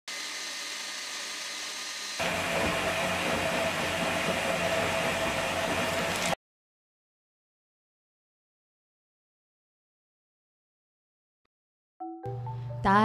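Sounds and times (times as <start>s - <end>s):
stand mixer motor whirring: 0.1s - 6.4s.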